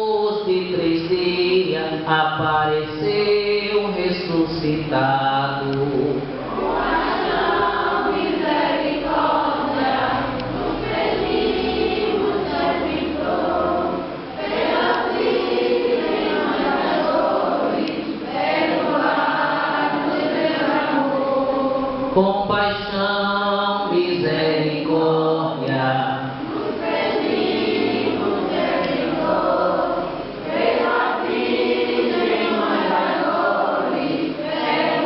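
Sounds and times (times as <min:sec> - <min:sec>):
group singing a hymn: 0:00.0 - 0:35.0.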